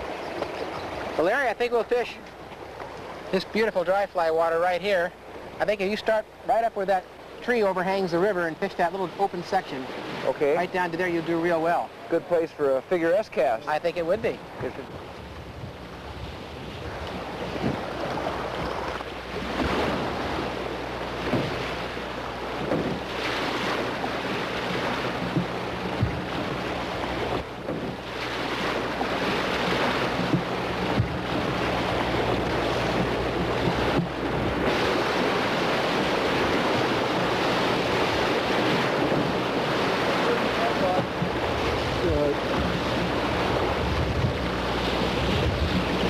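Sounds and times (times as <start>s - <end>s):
river current rushing: 0.0s - 46.0s
wind noise on microphone: 14.5s - 20.6s, 22.6s - 46.0s.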